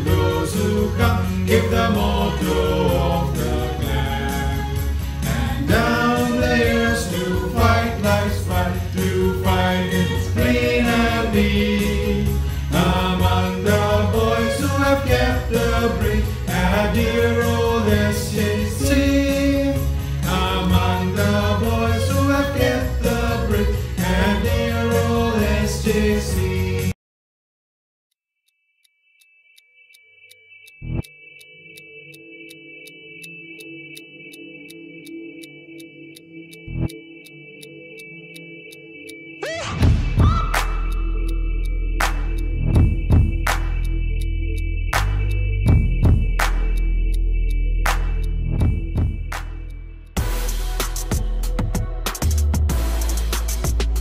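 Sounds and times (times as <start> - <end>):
voices singing with accompaniment: 0.0 - 27.0.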